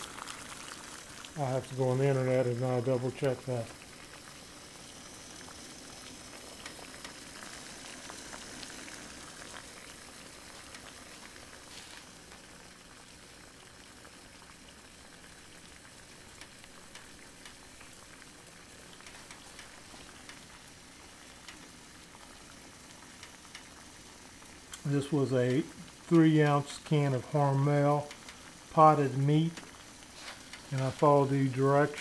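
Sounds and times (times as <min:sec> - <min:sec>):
water boiling with faint hiss: 0:00.0 - 0:32.0
small ticks and pops: 0:03.2 - 0:11.6, 0:15.2 - 0:24.9, 0:28.0 - 0:28.7.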